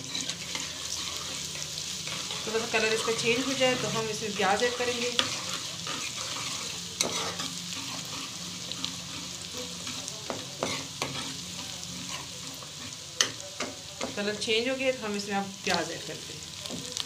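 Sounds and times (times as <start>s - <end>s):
spoon scraping a metal pan: 0.0s - 13.4s
paste sizzling in hot oil: 0.0s - 17.0s.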